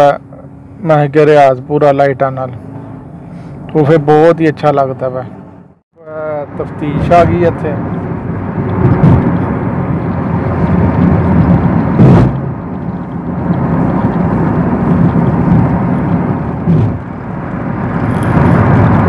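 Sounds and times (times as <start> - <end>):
road and wind noise in car cabin: 0.0 - 19.0
sharp knock: 12.0 - 12.4.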